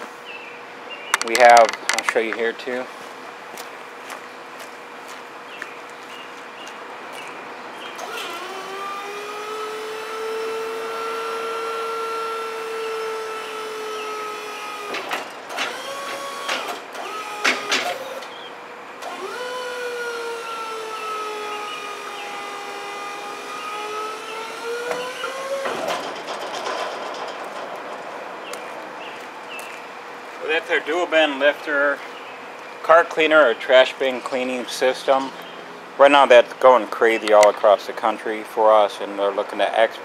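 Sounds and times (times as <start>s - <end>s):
bin lifter motor whining: 7.7s - 31.0s
metallic clanks: 24.9s - 28.6s.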